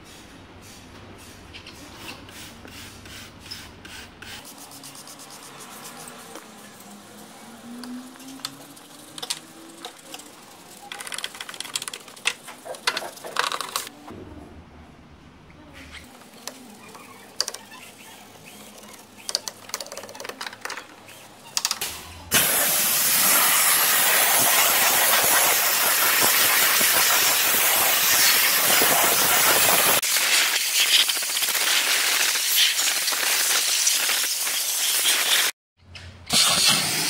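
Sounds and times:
brush scrubbing: 2.0s - 13.9s
steam jet hissing: 22.3s - 35.5s, 36.3s - 37.0s.

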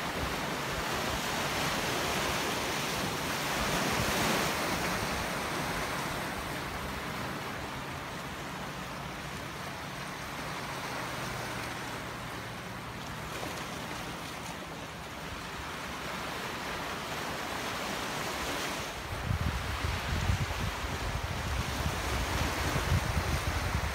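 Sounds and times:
waves and surf washing: 0.0s - 23.9s
wind gusting on microphone: 18.9s - 23.9s.

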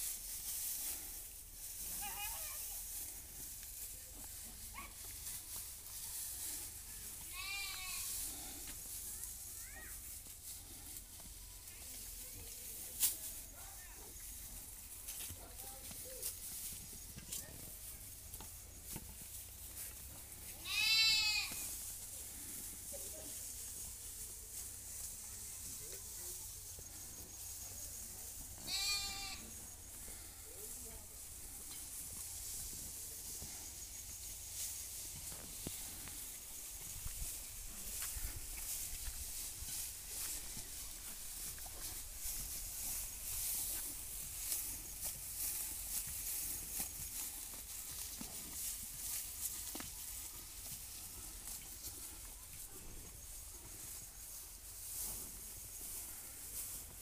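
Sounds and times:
cow chewing dry straw: 0.0s - 57.0s
straw rustling and crackling: 0.0s - 57.0s
goat bleating: 7.2s - 8.5s, 20.6s - 21.7s, 28.6s - 29.6s.

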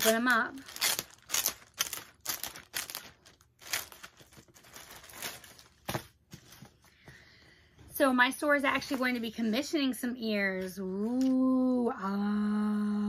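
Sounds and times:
packaging crinkling: 0.0s - 6.8s.

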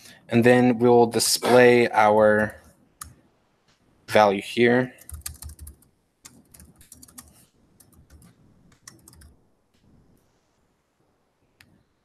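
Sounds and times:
typing on computer keyboard: 5.0s - 9.4s.

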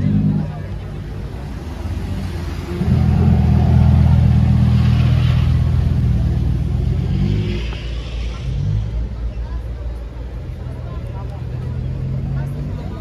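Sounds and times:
car engine pulling away: 1.9s - 9.6s.

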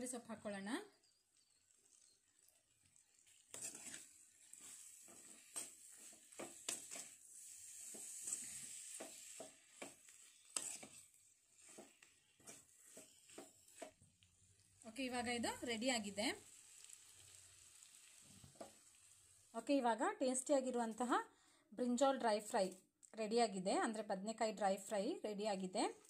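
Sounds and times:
faint sizzle: 0.0s - 21.8s
ladle scraping a pan: 3.0s - 14.0s.

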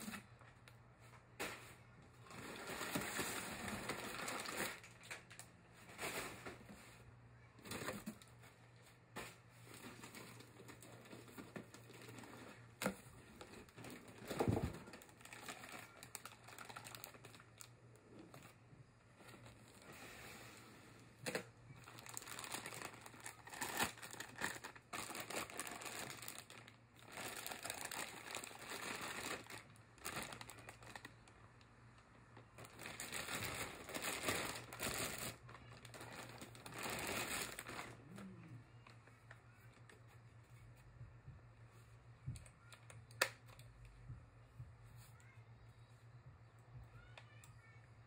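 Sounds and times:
plastic bag crinkling: 2.2s - 6.2s, 9.6s - 17.7s, 21.2s - 31.4s, 32.4s - 39.0s.

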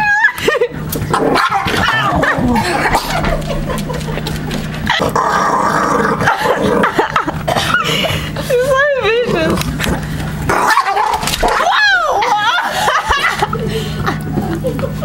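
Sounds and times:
dog growling and snarling: 1.0s - 7.8s, 9.2s - 11.6s.

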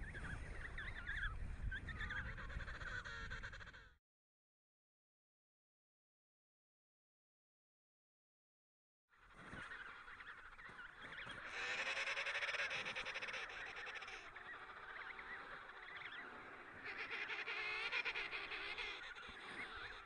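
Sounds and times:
fainter penguin calls: 9.4s - 20.0s.

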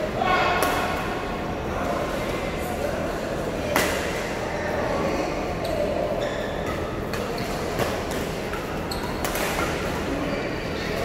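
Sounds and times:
hubbub of sports hall: 0.0s - 11.0s
rackets striking shuttlecock: 6.6s - 10.0s.

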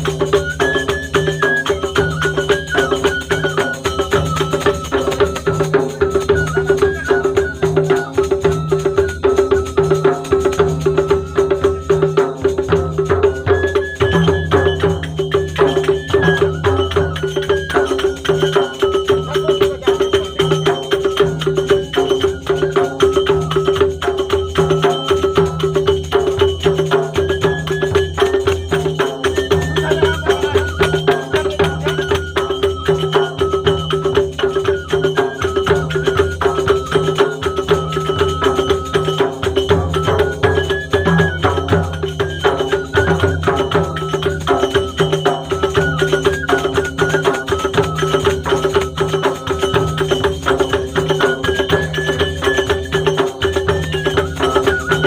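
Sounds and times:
drum and percussion beat: 0.0s - 55.0s
folk dance music: 0.0s - 55.0s
high melody: 0.0s - 55.0s.

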